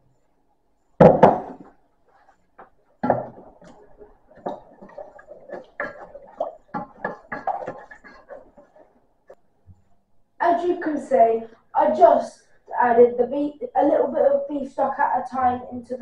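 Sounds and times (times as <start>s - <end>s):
wooden spoon stirring in saucepan: 2.1s - 9.4s
spoon knocking and scraping pan: 3.0s - 9.0s.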